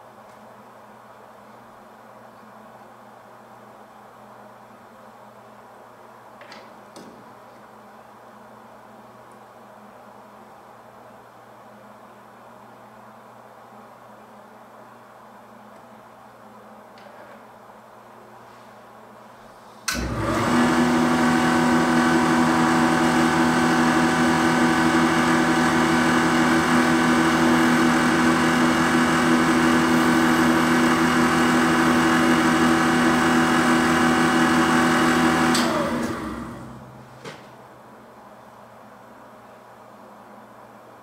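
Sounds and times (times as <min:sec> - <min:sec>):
valve grinder running: 0:20.0 - 0:36.9.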